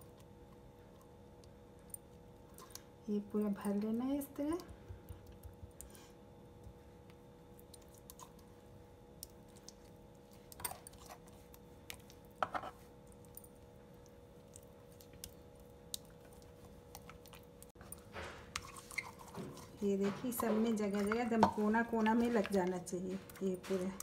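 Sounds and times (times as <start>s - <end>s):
faint steady hum: 0.0s - 24.0s
spoon spreading wet paste: 15.9s - 24.0s.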